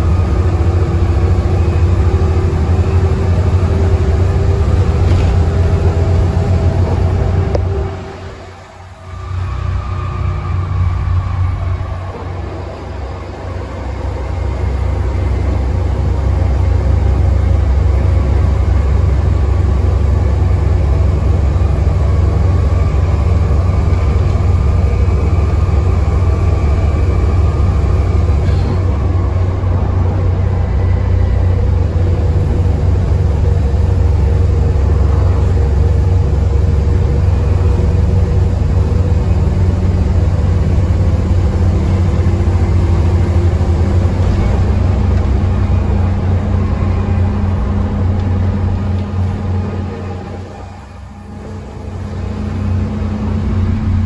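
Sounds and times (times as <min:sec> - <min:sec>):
bus diesel engine rumbling: 0:00.0 - 0:54.0.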